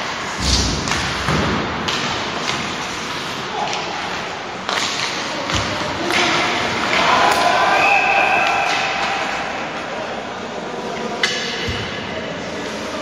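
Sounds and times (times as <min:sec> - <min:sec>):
skates scraping on ice: 0:00.0 - 0:05.5
hockey sticks and puck knocking: 0:00.0 - 0:07.5.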